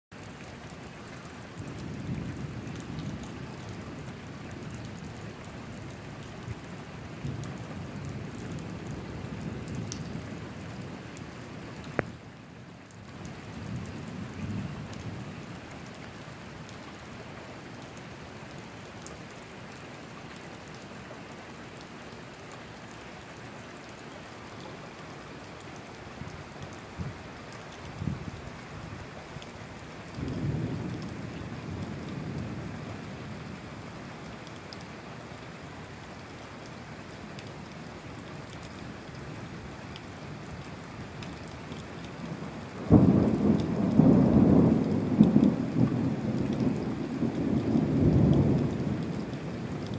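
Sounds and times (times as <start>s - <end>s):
steady rain: 0.1s - 49.9s
distant thunder rumbling: 42.3s - 49.7s.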